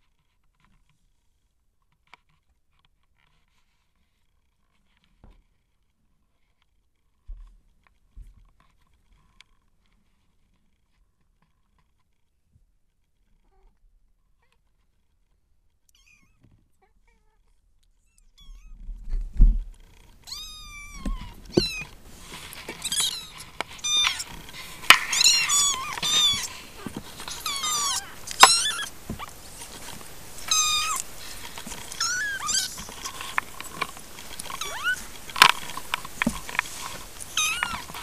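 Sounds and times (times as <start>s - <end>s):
kittens mewing: 20.2s - 38.0s
kittens knocking in a box: 20.9s - 38.0s.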